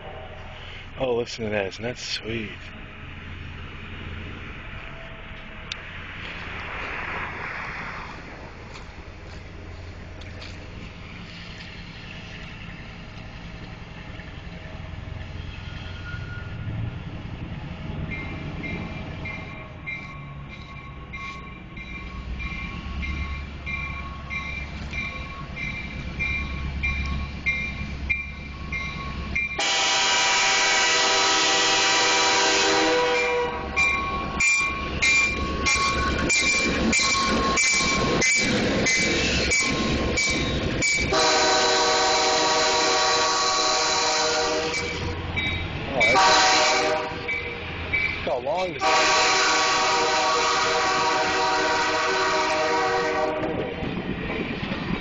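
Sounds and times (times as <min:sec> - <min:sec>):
steam locomotive rumble: 0:00.0 - 0:55.0
steam whistle blasts: 0:29.6 - 0:33.7, 0:41.1 - 0:45.0, 0:46.1 - 0:47.3, 0:48.8 - 0:53.4.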